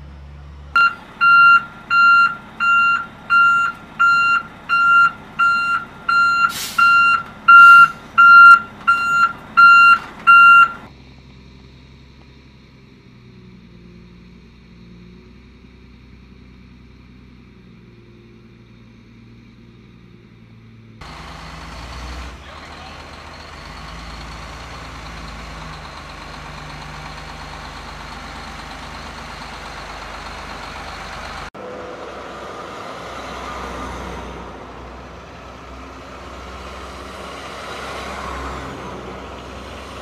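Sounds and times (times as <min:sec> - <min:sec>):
heavy vehicle engine rumble: 0:00.0 - 0:40.0
loud engine noise: 0:00.0 - 0:40.0
truck reversing alarm beeping: 0:00.7 - 0:10.9, 0:21.0 - 0:31.5.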